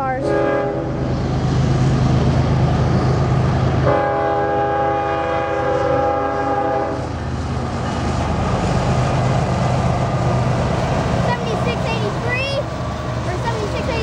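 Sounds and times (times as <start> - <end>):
locomotive air horn chord: 0.0 - 1.0, 3.8 - 7.0
diesel locomotives rumbling: 0.0 - 14.0.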